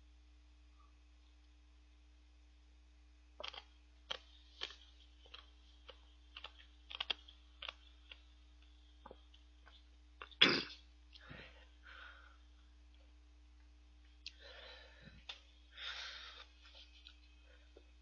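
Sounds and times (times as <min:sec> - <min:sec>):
faint steady hum: 0:00.0 - 0:18.0
wet mouth clicks chewing: 0:03.4 - 0:08.2.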